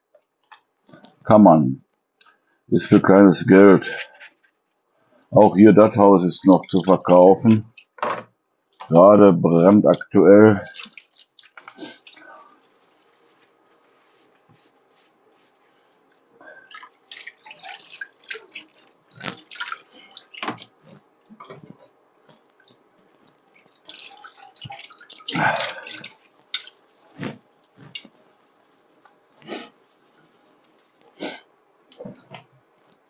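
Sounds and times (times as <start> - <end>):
water splashing in a sink: 6.3 - 8.0, 10.6 - 12.8, 16.5 - 29.0.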